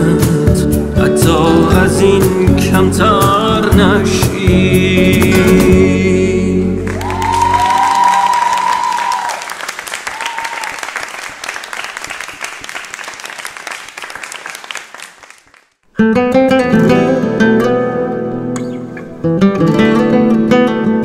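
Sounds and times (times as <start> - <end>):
strummed acoustic guitar chords: 0.0 - 6.9, 16.0 - 21.0
audience applauding: 6.9 - 15.8.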